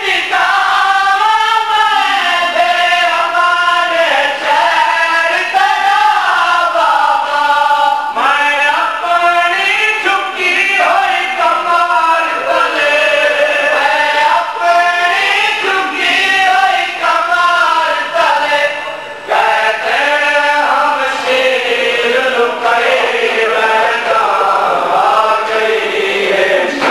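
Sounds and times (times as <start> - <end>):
men chanting a lament: 0.0 - 26.9.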